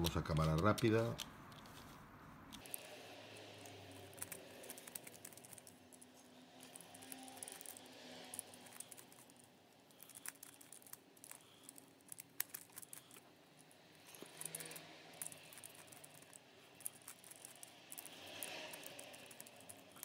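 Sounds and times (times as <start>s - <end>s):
plastic puzzle cube clicking: 4.0s - 9.3s, 10.0s - 13.2s, 14.2s - 20.0s.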